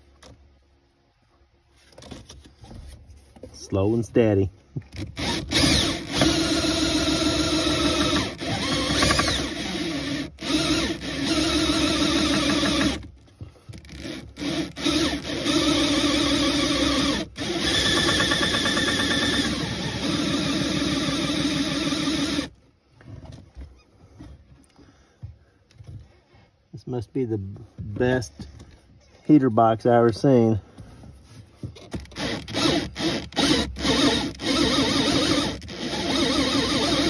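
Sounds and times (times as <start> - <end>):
electric drill cutting plastic: 5.0 - 13.0, 13.9 - 22.5, 32.0 - 37.0.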